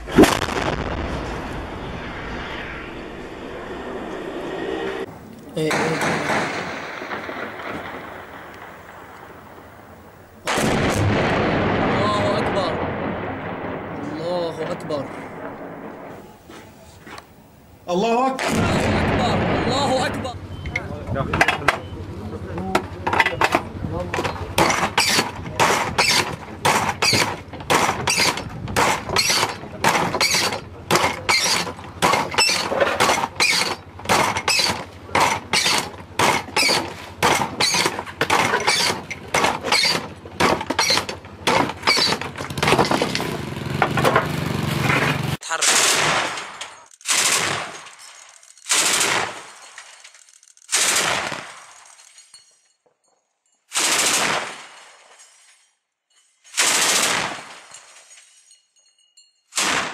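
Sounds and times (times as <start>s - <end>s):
loud cannon bursts: 0.0s - 4.2s, 5.1s - 16.6s, 18.4s - 20.6s, 24.3s - 48.0s, 48.7s - 49.6s, 50.7s - 51.8s, 53.7s - 55.0s, 56.6s - 57.8s, 59.6s - 59.9s
rapid gunshots: 5.7s - 9.1s, 45.5s - 47.9s, 48.7s - 49.6s, 50.7s - 51.8s, 53.7s - 54.9s, 56.6s - 57.6s, 59.6s - 59.9s.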